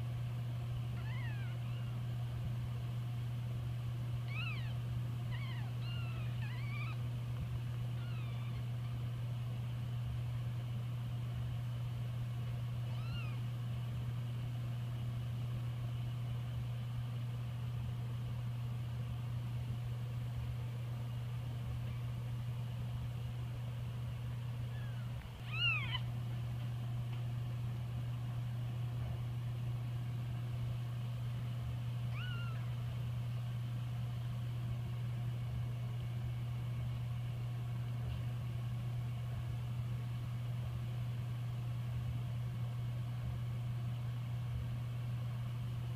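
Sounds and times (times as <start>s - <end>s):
steady low hum: 0.0s - 45.9s
kittens mewing: 0.9s - 2.1s, 4.2s - 7.2s, 7.8s - 8.9s, 12.8s - 13.5s, 24.6s - 26.2s, 32.0s - 32.8s.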